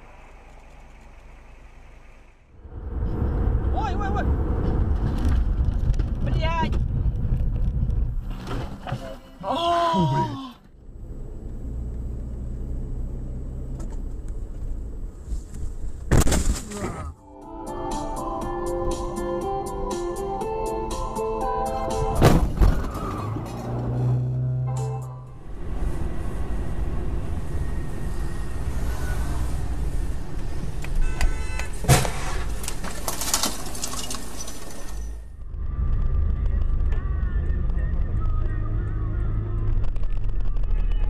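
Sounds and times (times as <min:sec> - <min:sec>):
car engine and tyres rumbling: 0:00.0 - 0:17.2, 0:18.4 - 0:41.0
car crash: 0:16.0 - 0:17.1, 0:22.2 - 0:24.0, 0:31.8 - 0:35.4.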